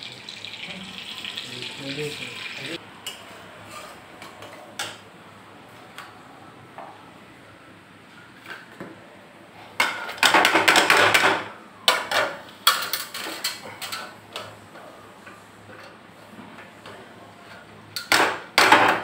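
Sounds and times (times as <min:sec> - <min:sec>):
onions frying in hot oil: 0:00.0 - 0:02.8
metal spatula scraping pan: 0:03.6 - 0:04.0.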